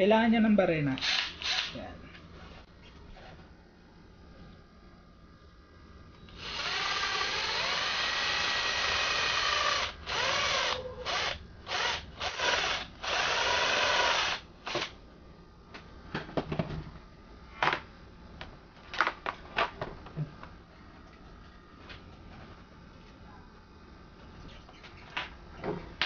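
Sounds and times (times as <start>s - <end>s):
cordless drill boring through plastic: 1.0s - 1.7s, 6.4s - 14.9s.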